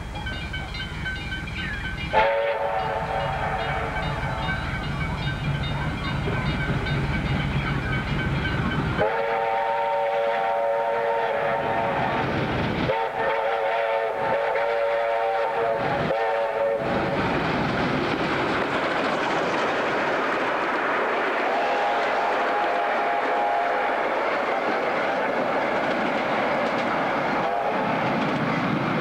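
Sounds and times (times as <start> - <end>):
steam locomotive whistle: 0.0 - 8.0, 8.9 - 17.3, 21.4 - 25.4, 27.2 - 28.1
steam engine rumble: 0.0 - 29.0.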